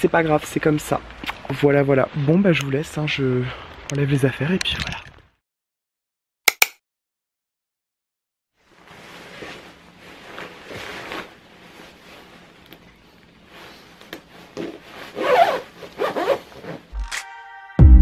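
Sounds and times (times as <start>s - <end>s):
fabric rustling: 8.6s - 16.9s
jacket zipper being pulled: 14.6s - 16.9s.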